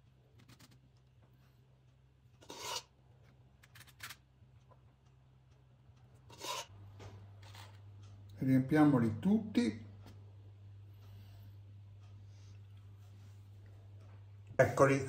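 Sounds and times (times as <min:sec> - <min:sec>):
faint low hum: 0:00.0 - 0:15.0
metal spoon scraping: 0:02.4 - 0:02.9, 0:06.3 - 0:06.7.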